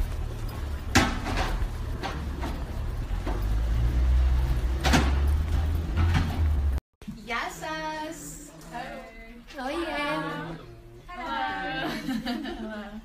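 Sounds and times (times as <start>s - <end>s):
footsteps on pavement: 0.0s - 6.8s
street traffic rumble: 0.0s - 6.8s.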